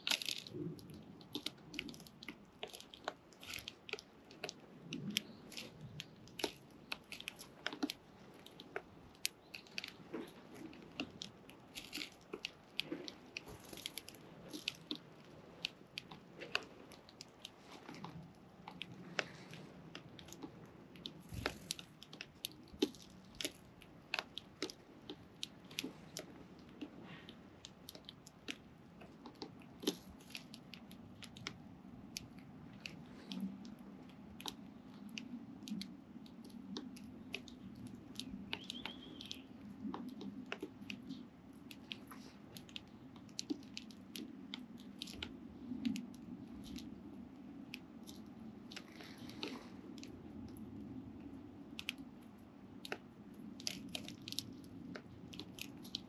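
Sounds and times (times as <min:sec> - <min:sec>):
birds cracking seed: 0:00.0 - 0:47.0
low steady hum: 0:00.0 - 0:56.0
bird chirp: 0:38.5 - 0:39.6.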